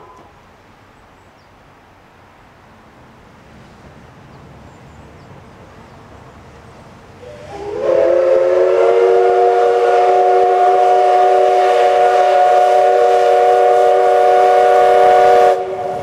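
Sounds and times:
steam locomotive whistle: 7.2 - 16.0.

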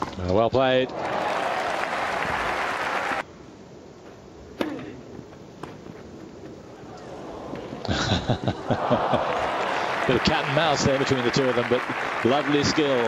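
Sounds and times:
crowd cheering: 0.8 - 3.3, 6.8 - 13.0
crowd applause: 0.9 - 3.2, 8.1 - 13.0.

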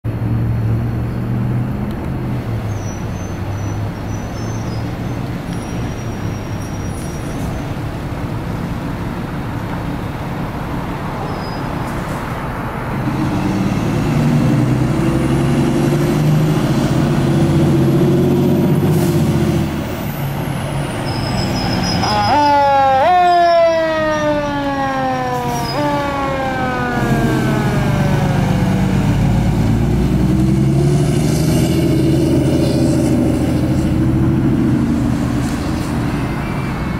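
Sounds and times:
air brakes hissing: 18.8 - 19.4
siren rising sweeps: 21.0 - 36.9
diesel engine running: 23.9 - 36.9.

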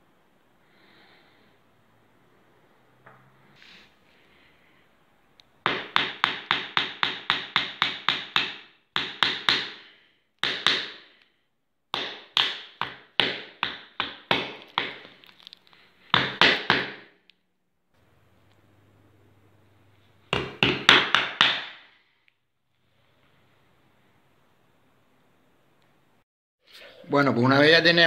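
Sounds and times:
hammer striking nails into wood: 5.6 - 9.8, 10.4 - 11.1, 11.9 - 15.0, 16.1 - 17.2, 20.3 - 21.9.

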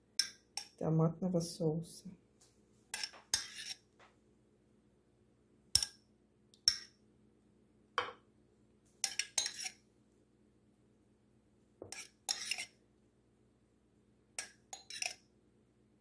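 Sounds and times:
spoon clinking against dishes: 9.0 - 9.7.

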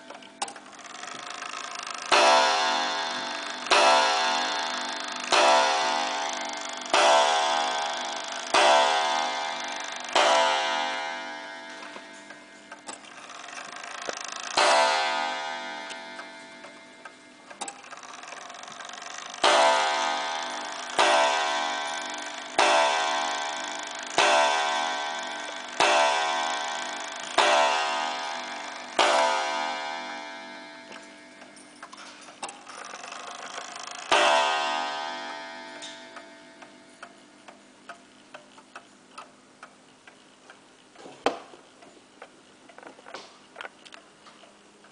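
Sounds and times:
clock striking: 0.0 - 40.6
clock ticking: 0.0 - 40.9.

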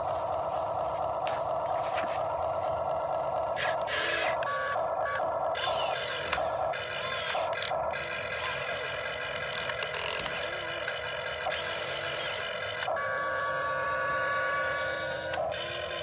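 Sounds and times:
electric gear motors whining: 0.0 - 16.0
sharp clicks: 3.6 - 8.8, 9.4 - 11.7.

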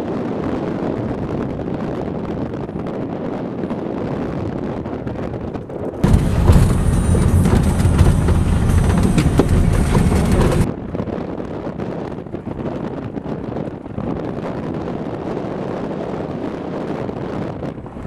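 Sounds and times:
deep rumble inside vehicle cabin: 0.0 - 18.0
wind noise on microphone: 0.0 - 18.0
knocks and rattles: 6.0 - 10.7.

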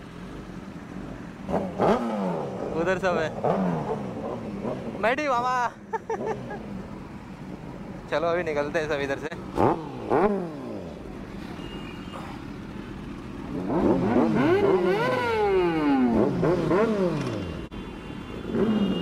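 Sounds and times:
motorcycle engine revving: 0.9 - 5.2, 9.4 - 11.4, 12.7 - 17.7, 18.4 - 19.0.

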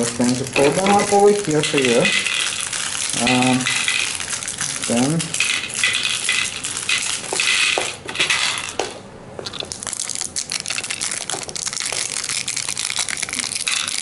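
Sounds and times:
candies clicking in bowl: 0.0 - 14.0
hard candies rattling into plastic bowl: 0.0 - 14.0.

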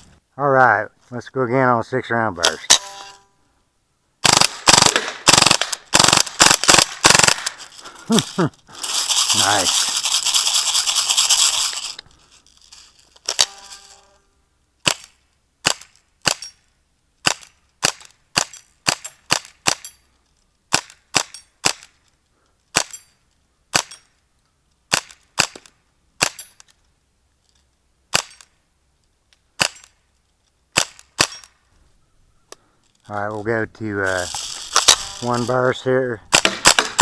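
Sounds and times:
bb gun firing sharp pops: 4.2 - 7.6, 14.8 - 16.5, 17.2 - 19.9, 20.7 - 22.0, 24.9 - 26.4, 30.7 - 31.5, 36.3 - 37.0.

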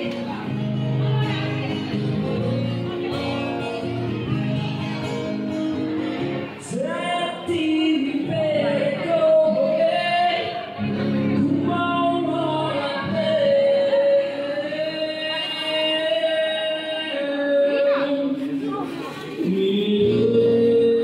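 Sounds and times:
woman singing: 11.4 - 18.3.

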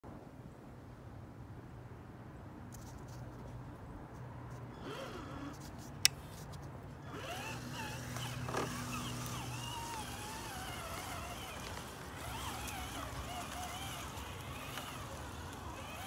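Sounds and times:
rc car electric motor whining: 4.8 - 5.7, 7.0 - 16.0.

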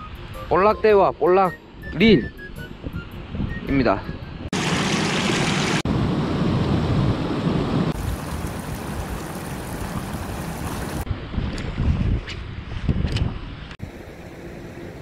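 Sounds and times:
wind buffeting microphone: 6.0 - 13.8
water rushing over a weir: 8.0 - 11.1.

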